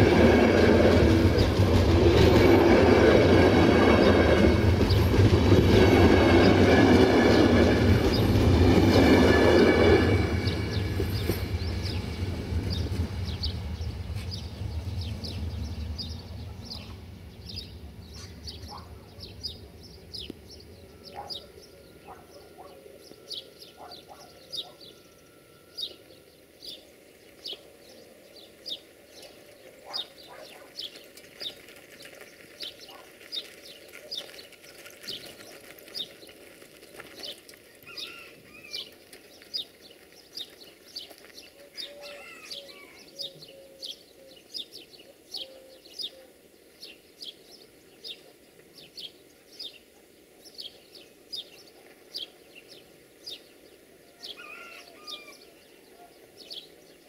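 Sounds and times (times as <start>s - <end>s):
passenger train rumble: 0.0s - 31.1s.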